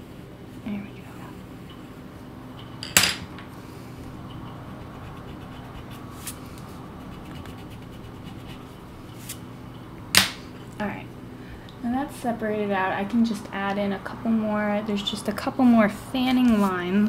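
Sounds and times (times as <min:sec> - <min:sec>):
drawing tool scratching paper: 0:07.0 - 0:08.8.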